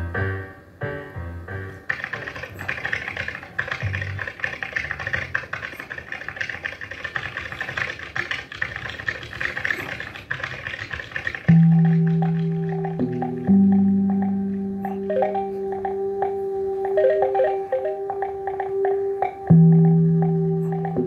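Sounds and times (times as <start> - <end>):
fast dense clicking: 1.9 - 14.4
music with held low note: 11.5 - 21.0.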